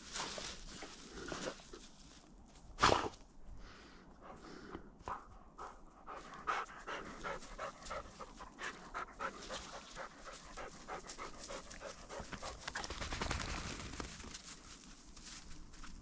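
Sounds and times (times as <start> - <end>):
rustling in undergrowth: 0.0 - 3.4, 7.0 - 16.0
dog panting rapidly: 5.1 - 13.0
footsteps in snow: 13.9 - 16.0.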